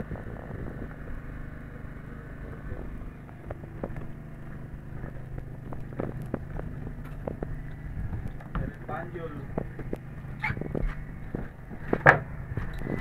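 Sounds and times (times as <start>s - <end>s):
boat engine humming: 0.0s - 13.0s
light knocks and clatter: 3.2s - 13.0s.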